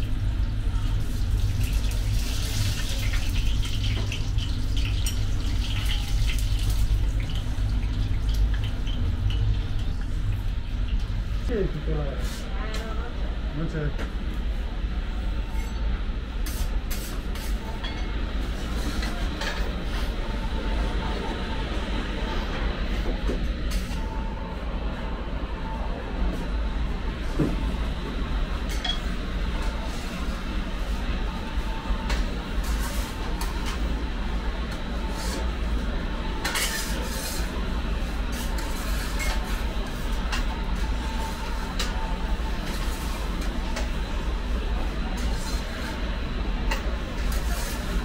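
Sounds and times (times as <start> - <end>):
oven area rumble: 0.0 - 48.0
metal peel scraping oven floor: 36.4 - 37.5.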